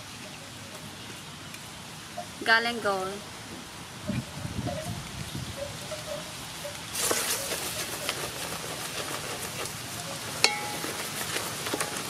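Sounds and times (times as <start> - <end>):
ginger and garlic sizzling in oil: 4.4 - 12.0
wooden ladle stirring in pot: 6.9 - 12.0.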